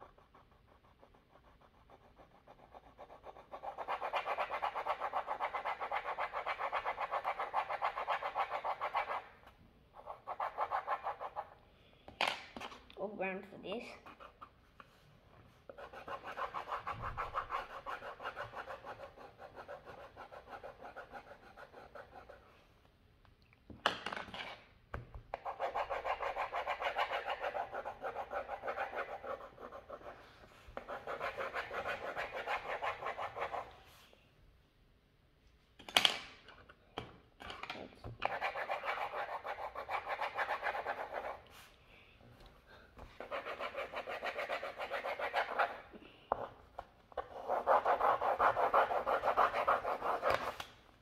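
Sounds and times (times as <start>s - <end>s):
pencil scratching on paper: 0.0s - 11.6s, 13.9s - 14.8s, 15.6s - 22.6s, 25.3s - 34.0s, 38.2s - 41.7s, 43.2s - 50.6s.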